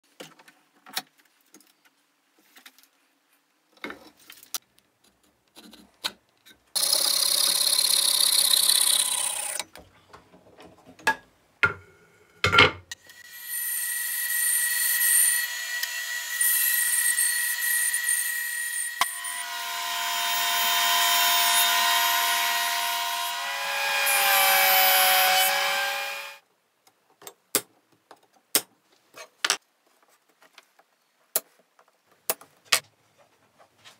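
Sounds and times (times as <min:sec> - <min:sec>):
bandsaw sawing wood: 0:14.1 - 0:26.4
power saw running: 0:14.9 - 0:26.4.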